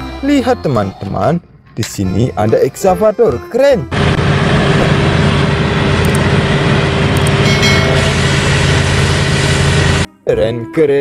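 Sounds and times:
crane engine humming: 3.9s - 10.1s.

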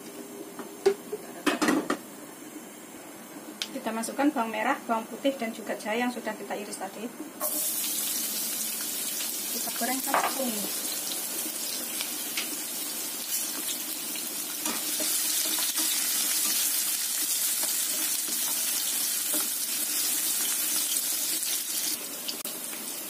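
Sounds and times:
food sizzling in hot oil: 7.4s - 23.0s
spatula stirring in pan: 14.6s - 20.6s.

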